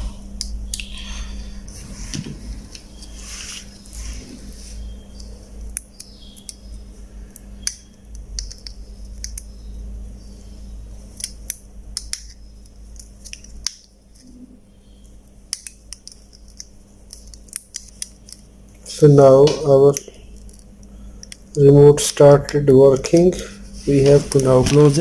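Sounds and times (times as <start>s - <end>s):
plastic handling noise: 22.9s - 25.0s.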